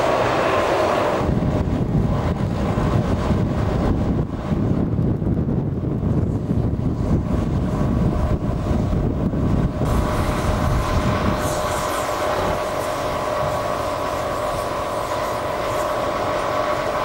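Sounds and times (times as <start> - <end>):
heavy machinery engine whining: 0.0 - 17.0
wind buffeting microphone: 0.0 - 17.0.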